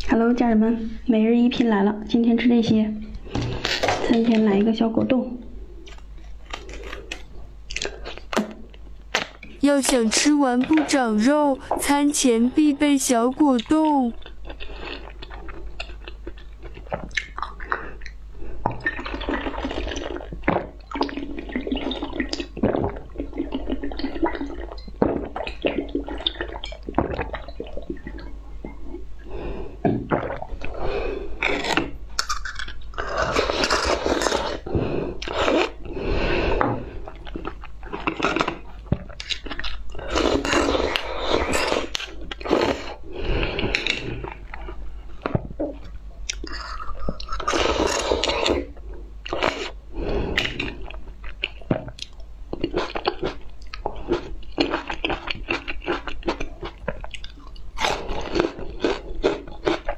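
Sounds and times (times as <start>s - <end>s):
drinking and swallowing: 14.2s - 59.9s.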